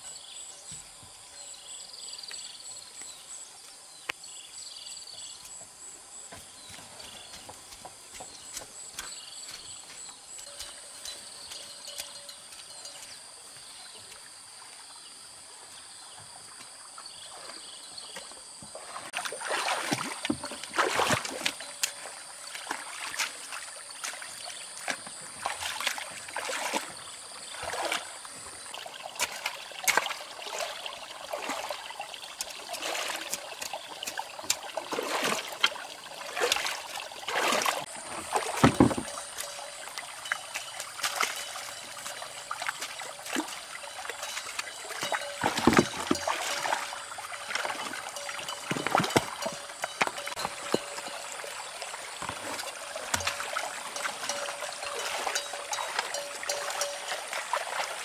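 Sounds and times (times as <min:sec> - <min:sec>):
stream water trickling: 0:00.0 - 0:58.0
water splashing from wading: 0:18.7 - 0:58.0.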